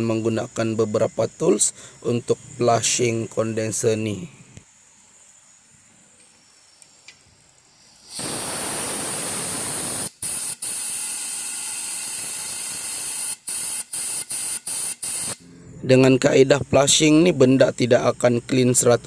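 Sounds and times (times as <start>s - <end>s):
compressed air blow gun hissing: 1.6s - 15.4s.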